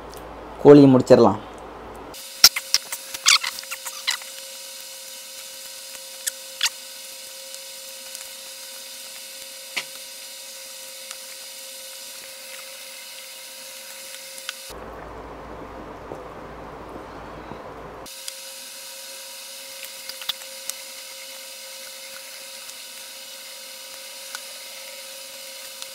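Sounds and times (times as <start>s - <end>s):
steady hum and hiss: 0.0s - 25.9s
eating by hand: 2.4s - 4.4s, 5.3s - 6.8s, 19.7s - 25.9s.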